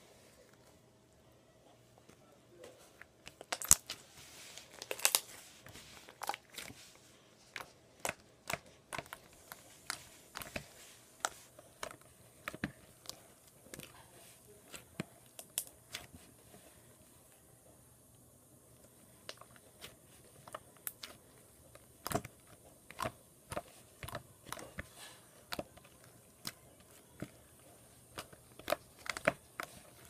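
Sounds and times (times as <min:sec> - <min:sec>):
slime clicking and popping: 0:03.3 - 0:04.0.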